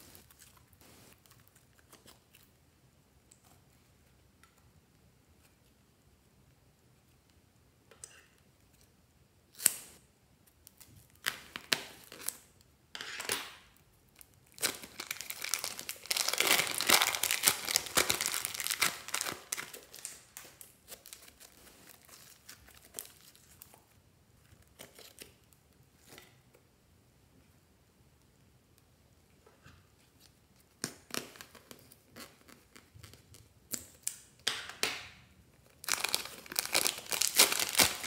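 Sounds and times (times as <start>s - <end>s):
plastic piping bag crinkling: 13.5s - 23.9s, 35.6s - 38.0s.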